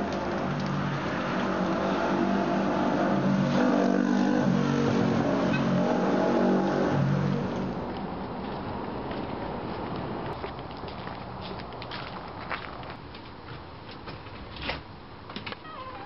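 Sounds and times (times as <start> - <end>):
car engine revving: 0.0 - 7.8.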